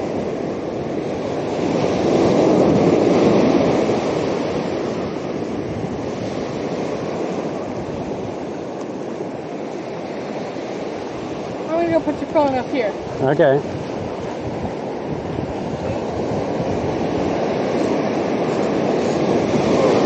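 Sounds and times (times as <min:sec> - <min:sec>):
ocean surf washing up beach: 0:00.0 - 0:20.0.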